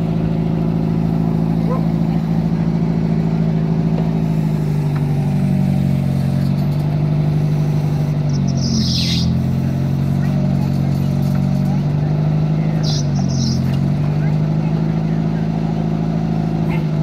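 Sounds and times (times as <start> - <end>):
engine running steadily: 0.0 - 17.0
high falling chirp: 8.3 - 9.4, 12.8 - 13.6.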